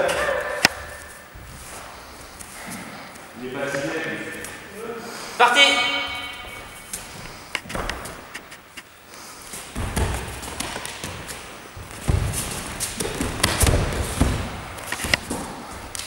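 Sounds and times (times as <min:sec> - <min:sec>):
bare feet thudding on gym mats: 0:00.0 - 0:02.9, 0:06.1 - 0:08.8, 0:09.5 - 0:16.0
uniforms rustling: 0:00.0 - 0:16.0.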